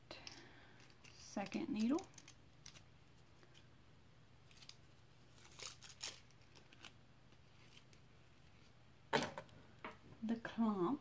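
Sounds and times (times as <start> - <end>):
packaging rustling and crinkling: 0.2 - 3.7, 4.4 - 8.7.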